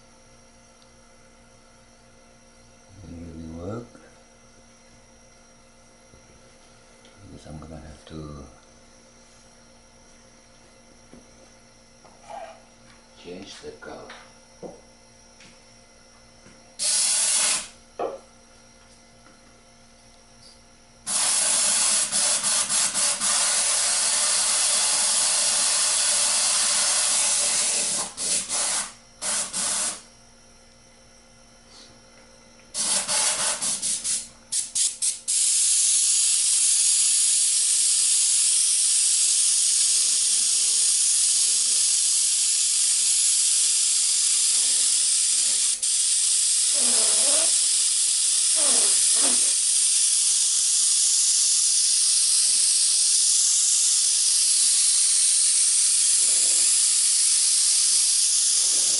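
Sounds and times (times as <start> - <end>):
airbrush hissing: 16.8 - 17.8, 21.1 - 30.0, 32.8 - 58.9.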